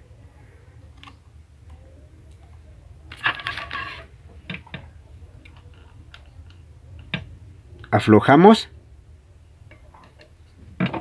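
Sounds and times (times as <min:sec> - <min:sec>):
metal tools clattering: 0:03.1 - 0:04.1.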